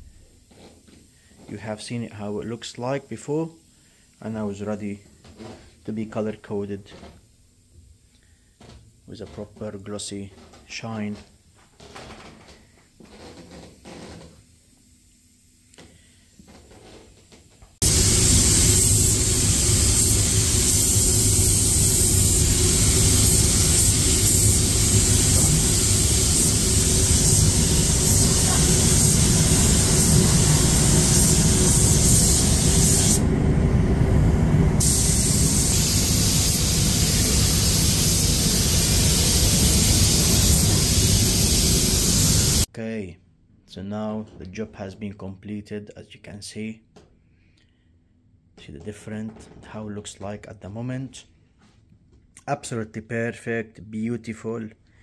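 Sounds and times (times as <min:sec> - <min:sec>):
paint spray gun hissing: 0:17.8 - 0:33.2, 0:34.8 - 0:42.7
steady low hum: 0:17.8 - 0:42.7.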